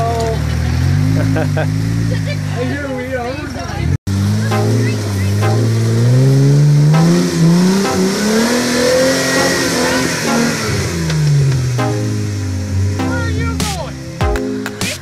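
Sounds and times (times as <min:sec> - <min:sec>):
engine revving hard: 0:00.6 - 0:02.6, 0:04.1 - 0:13.0.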